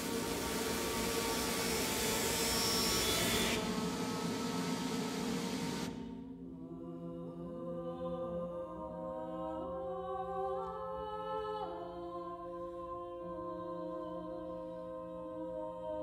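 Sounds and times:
loud hissing rasping noise: 0.0s - 6.0s
held low tones: 0.0s - 6.1s
women singing unaccompanied: 6.7s - 16.0s.

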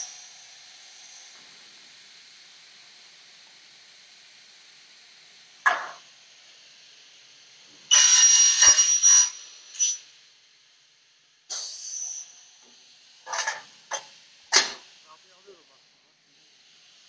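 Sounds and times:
cutting machine hissing noise: 14.5s - 15.8s.

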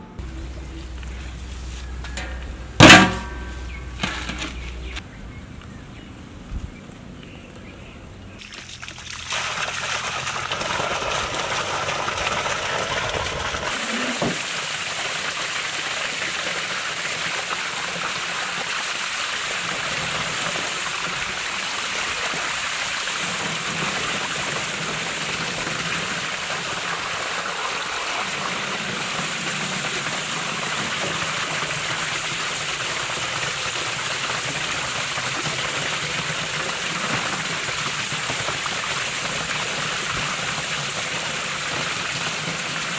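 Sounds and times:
water splashing onto metal tray: 2.2s - 4.7s, 8.4s - 13.4s.

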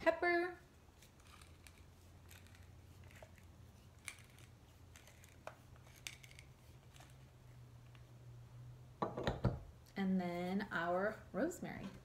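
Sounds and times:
low steady hum: 0.0s - 12.0s
pepper mill grinding: 0.9s - 7.4s.

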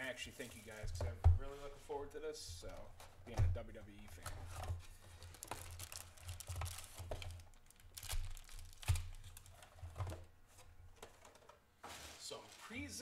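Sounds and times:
foil packs crinkling: 5.0s - 10.2s.

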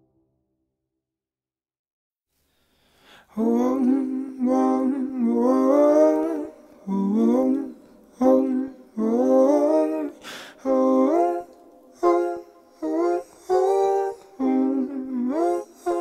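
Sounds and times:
quick breath in: 2.4s - 3.3s, 10.2s - 10.6s.

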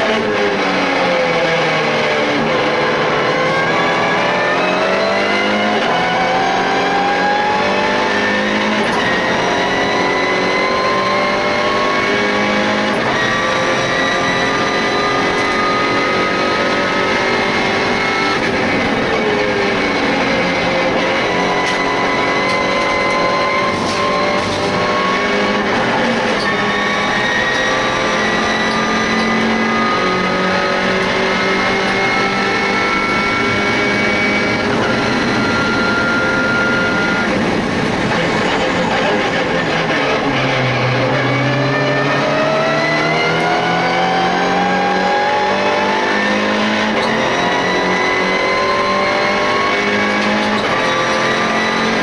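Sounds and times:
race car engine at full throttle: 0.0s - 52.0s.

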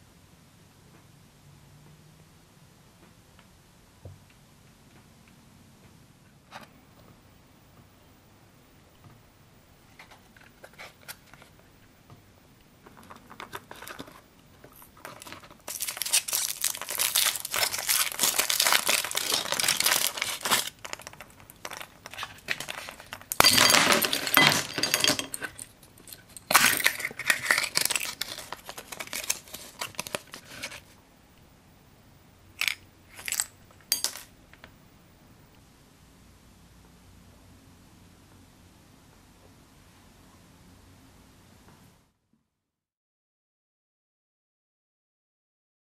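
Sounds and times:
foil packaging crinkling: 13.0s - 14.2s, 14.8s - 25.2s, 26.4s - 31.0s, 32.6s - 34.3s.

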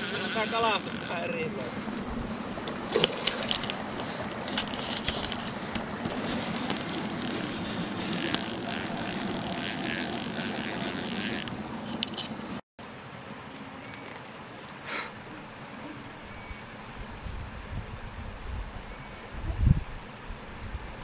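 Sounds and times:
fishing reel clicks: 0.0s - 1.7s, 6.4s - 11.6s
fishing reel whirring: 0.0s - 12.2s.

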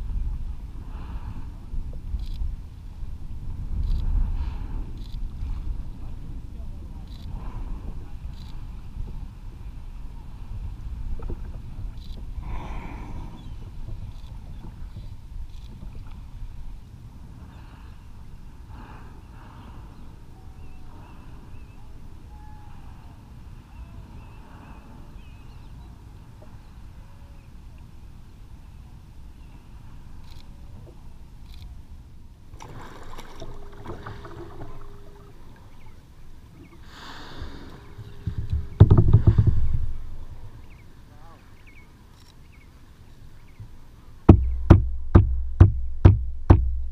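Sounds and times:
wind buffeting microphone: 0.0s - 27.5s, 29.0s - 41.8s
water slapping against hull: 32.5s - 35.9s, 36.6s - 40.7s
rush of water: 32.5s - 42.0s.

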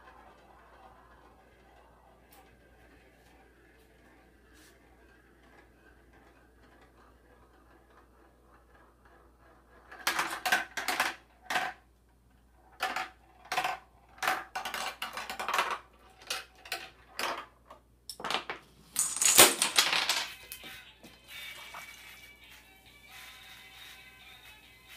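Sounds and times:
small hard pieces clattering: 19.0s - 20.4s.

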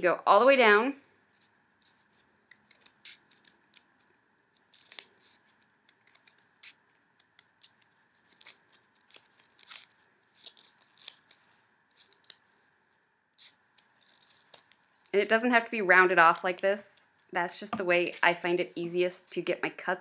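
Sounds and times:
scissors snipping paper: 1.8s - 12.4s.

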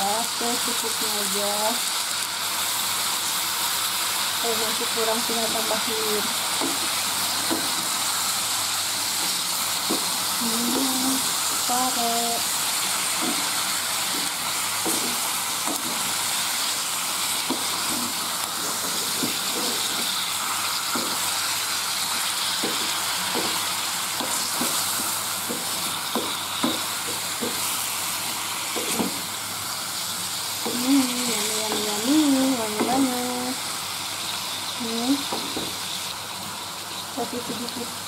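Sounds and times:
vegetables sizzling in hot oil: 0.0s - 38.0s
wooden spatula scraping a pan: 28.8s - 29.2s.

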